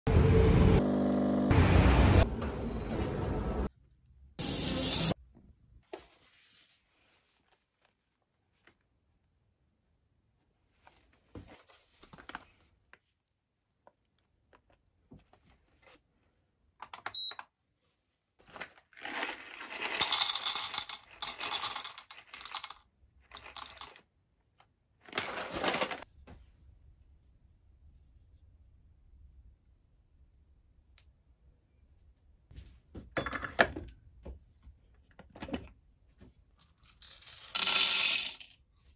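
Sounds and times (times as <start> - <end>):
coffee beans rattling into cup: 18.9 - 24.0, 36.9 - 38.5.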